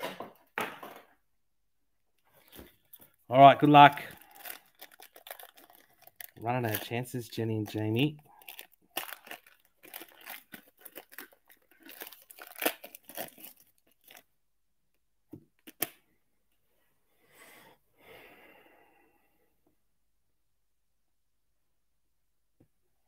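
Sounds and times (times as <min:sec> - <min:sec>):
cards rustling: 0:02.3 - 0:14.2
foil wrapper tearing and crinkling: 0:03.9 - 0:14.3.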